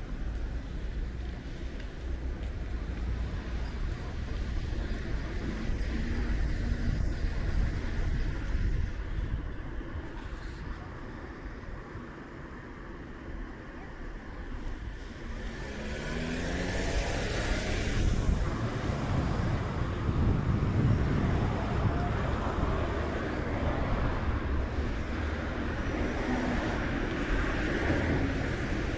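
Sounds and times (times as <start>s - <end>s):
vehicle engine and tyre rumble: 0.0s - 28.9s.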